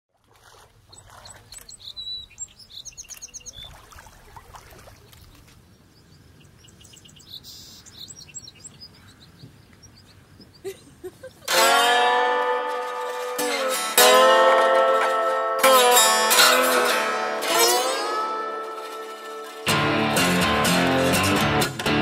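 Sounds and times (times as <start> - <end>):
birds chirping: 0.5 - 11.5.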